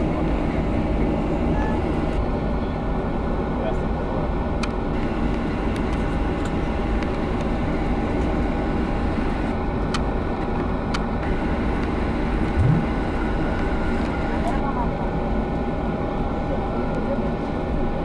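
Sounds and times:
jet engines idling rumble: 0:00.0 - 0:18.0
thin steady whine: 0:11.2 - 0:14.7
low sound rising in pitch: 0:12.6 - 0:13.2.

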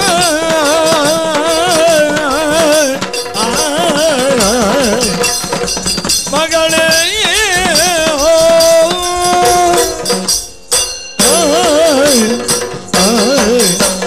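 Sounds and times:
cymbal clashes: 0:00.0 - 0:14.0
drum strokes: 0:00.0 - 0:14.0
man singing ornamented melody: 0:00.0 - 0:14.0.

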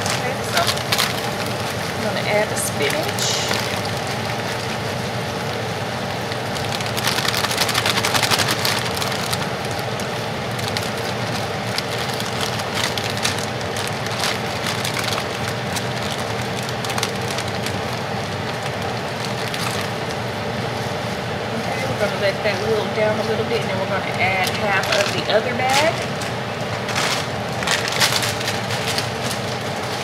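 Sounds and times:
spinach sizzling in butter: 0:00.0 - 0:21.2.

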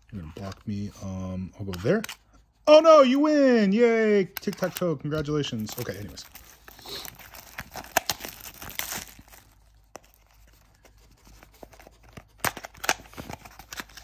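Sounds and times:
plastic wrap tearing and crinkling: 0:05.5 - 0:10.2.

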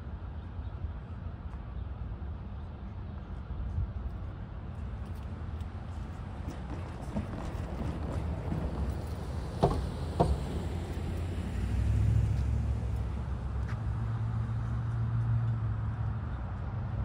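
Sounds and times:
low engine rumble: 0:04.9 - 0:17.0.

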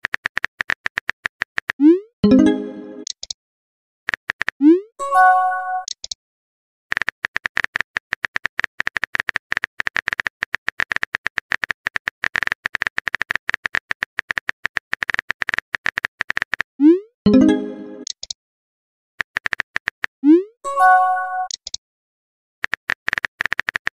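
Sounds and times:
phone keyboard typing clicks: 0:05.8 - 0:06.2, 0:21.4 - 0:21.8, 0:22.6 - 0:23.9.

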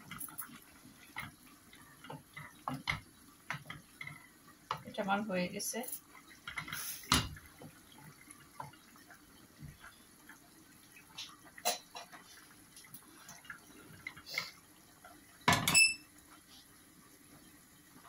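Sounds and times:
spatula stirring in pot: 0:00.0 - 0:05.0
curry bubbling: 0:00.0 - 0:15.5.

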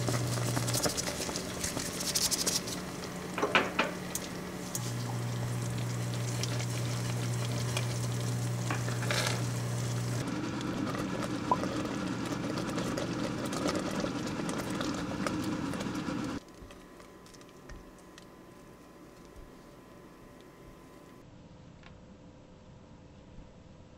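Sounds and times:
spatula stirring and scraping: 0:00.0 - 0:10.2, 0:10.8 - 0:19.6
thick jam boiling and bubbling: 0:00.0 - 0:21.2.

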